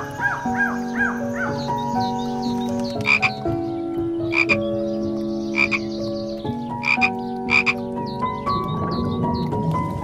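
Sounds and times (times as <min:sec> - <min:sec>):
frog croaking: 0:03.0 - 0:03.4, 0:04.3 - 0:04.6, 0:05.5 - 0:06.0, 0:06.7 - 0:07.8.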